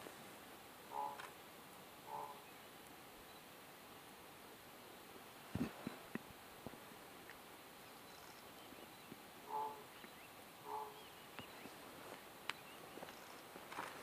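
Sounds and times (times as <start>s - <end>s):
raven harsh calls: 0.9s - 1.3s, 2.0s - 2.6s, 9.4s - 10.0s, 10.6s - 11.2s.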